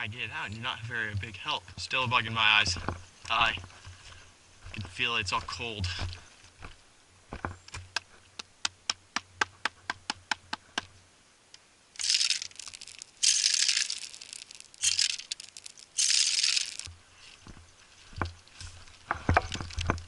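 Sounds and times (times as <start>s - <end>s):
quick clicks: 12.0s - 16.9s.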